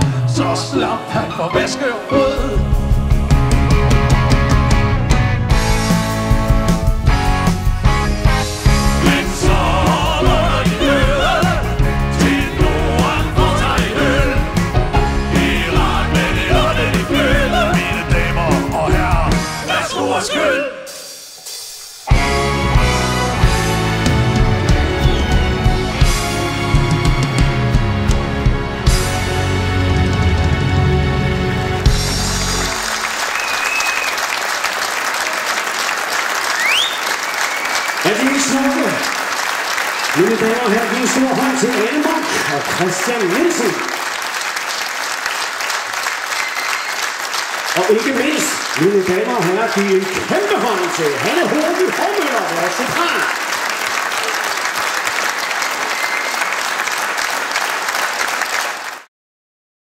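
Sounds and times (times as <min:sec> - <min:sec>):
audience applauding: 0:08.5 - 0:19.9, 0:31.6 - 0:59.1
whistles in the crowd: 0:33.1 - 0:34.5, 0:36.4 - 0:38.2, 0:46.3 - 0:47.2, 0:55.7 - 0:56.6.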